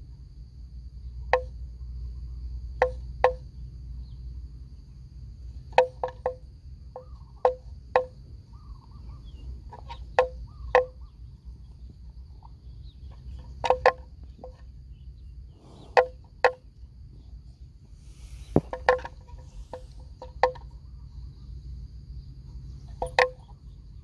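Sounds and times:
sharp hollow ringing knocks: 0:01.3 - 0:01.6, 0:02.8 - 0:03.5, 0:05.7 - 0:08.2, 0:09.9 - 0:11.2, 0:13.3 - 0:14.6, 0:15.9 - 0:16.7, 0:18.5 - 0:20.8, 0:22.9 - 0:23.5.

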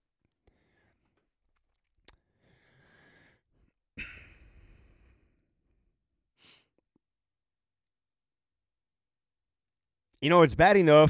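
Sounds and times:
man breathing in: 0:02.2 - 0:05.5.

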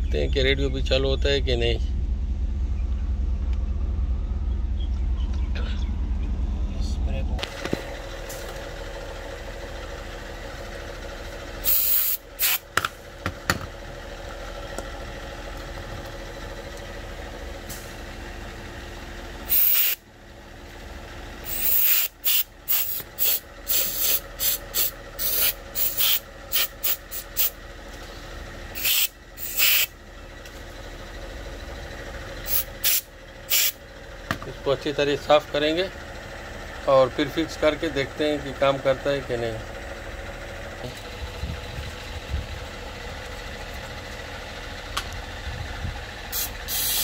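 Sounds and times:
background hum: 0:00.0 - 0:47.0
aerosol spray hissing: 0:11.6 - 0:12.6, 0:19.5 - 0:20.0, 0:21.5 - 0:27.5, 0:28.8 - 0:29.9, 0:32.5 - 0:33.8, 0:46.3 - 0:47.0.

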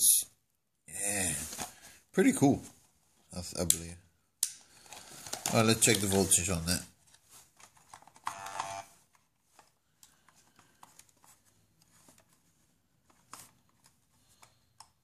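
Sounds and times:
small handling clicks and taps: 0:13.1 - 0:15.0.

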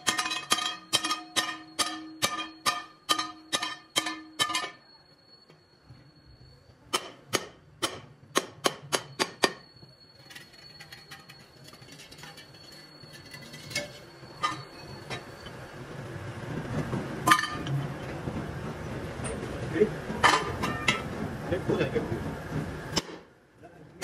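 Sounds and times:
metal wheel rims clinking: 0:00.0 - 0:05.0, 0:09.0 - 0:15.8, 0:17.2 - 0:17.8, 0:20.2 - 0:21.1.

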